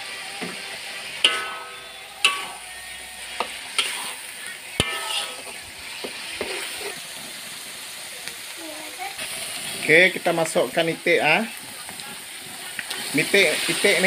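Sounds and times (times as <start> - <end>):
paste sizzling in oil: 0.0 - 14.0
spatula clanging on wok: 1.2 - 6.9.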